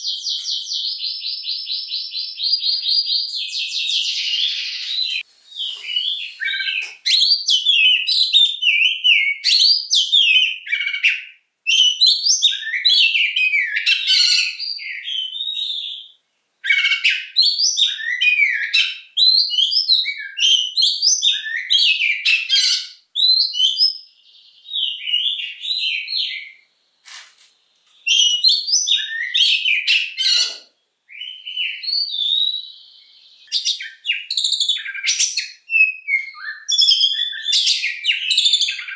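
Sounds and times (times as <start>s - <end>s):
bird singing whistles and chirps: 0.0s - 26.8s, 28.0s - 38.9s.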